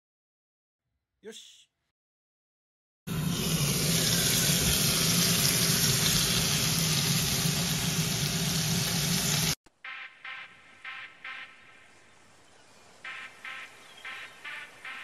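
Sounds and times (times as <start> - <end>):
patties sizzling in a pan: 3.1 - 9.6.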